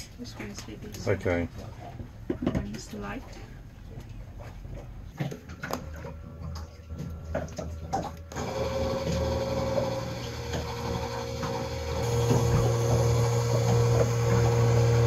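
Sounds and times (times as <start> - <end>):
electric pump motor hum: 5.2 - 15.0
louder pump running: 6.0 - 15.0.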